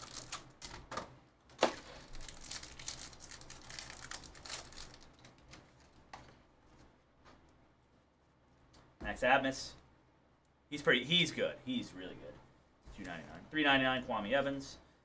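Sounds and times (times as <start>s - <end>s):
foil pack tearing and crinkling: 0.0s - 0.8s, 1.6s - 5.5s
cards rustling: 1.6s - 6.4s.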